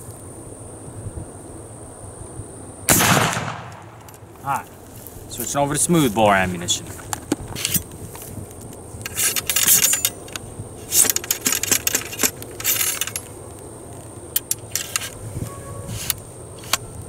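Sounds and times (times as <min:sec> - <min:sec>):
metallic scrapes and clinks: 0:09.1 - 0:13.3.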